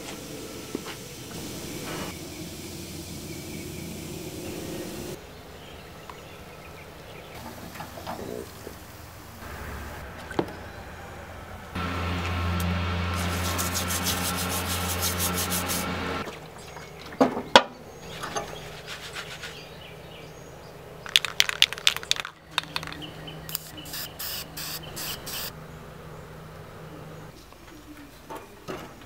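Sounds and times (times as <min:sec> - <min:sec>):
low steady hum: 0:00.3 - 0:18.7
brush scrubbing metal buckle: 0:13.2 - 0:15.8.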